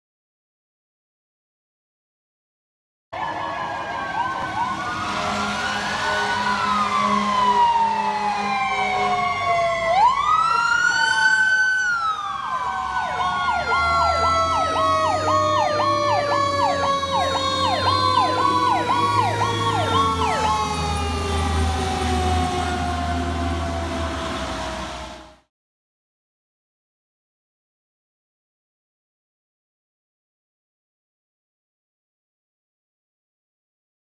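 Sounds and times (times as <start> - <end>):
electronic siren wailing and yelping: 3.2 - 24.0
mechanical siren winding down: 3.2 - 25.4
truck engine drone: 3.2 - 25.5.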